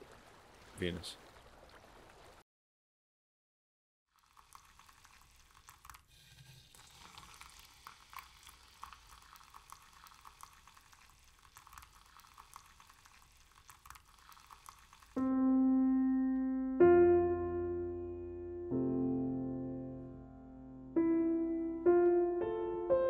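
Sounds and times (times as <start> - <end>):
coffee stream pouring into mug: 4.1 - 15.2
piano chord: 15.2 - 23.0.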